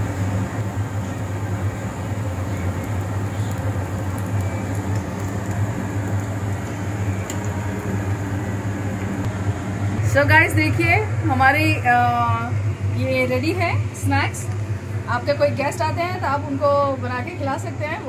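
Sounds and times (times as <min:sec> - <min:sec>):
food sizzling in hot oil: 0:00.0 - 0:09.2
low mechanical hum: 0:00.0 - 0:18.0.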